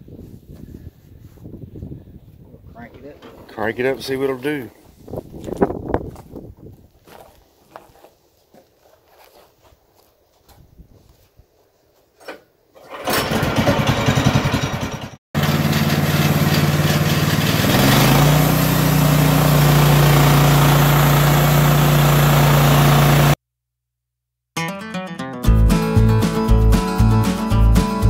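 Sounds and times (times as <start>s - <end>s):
sawmill engine running: 12.8s - 23.4s.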